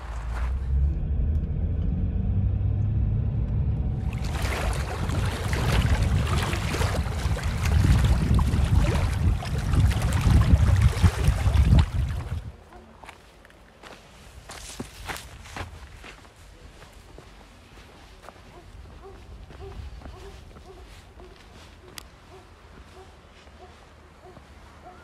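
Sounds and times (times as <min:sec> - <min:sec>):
car engine and road rumble: 0:00.0 - 0:05.4.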